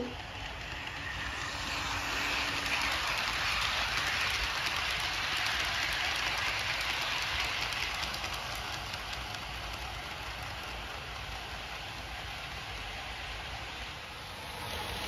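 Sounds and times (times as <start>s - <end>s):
model train wheels rolling: 0.0s - 15.0s.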